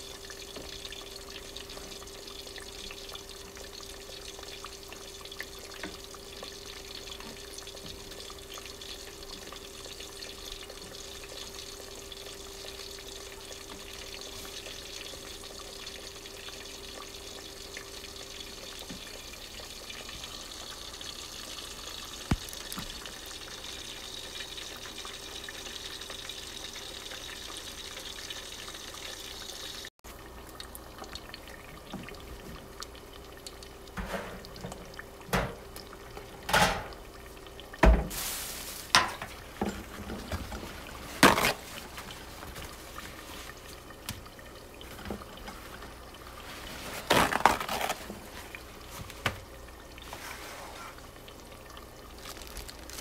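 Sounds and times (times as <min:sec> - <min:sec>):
faint steady hum: 0:00.0 - 0:53.0
food deep-frying in oil: 0:00.0 - 0:53.0.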